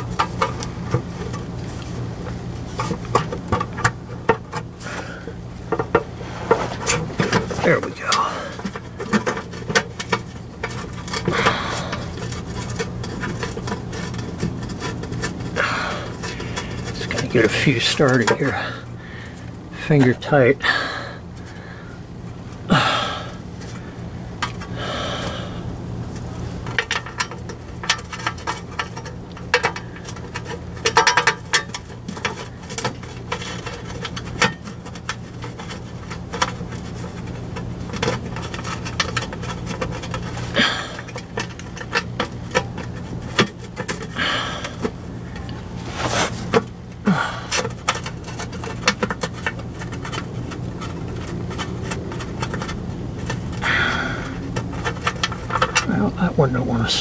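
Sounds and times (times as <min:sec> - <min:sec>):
metallic clicks and scrapes: 0:05.6 - 0:20.6, 0:26.1 - 0:57.0
person breathing: 0:11.3 - 0:12.1, 0:18.6 - 0:19.5, 0:20.6 - 0:22.0, 0:22.7 - 0:23.4, 0:24.8 - 0:25.7, 0:47.1 - 0:47.6, 0:53.6 - 0:54.4.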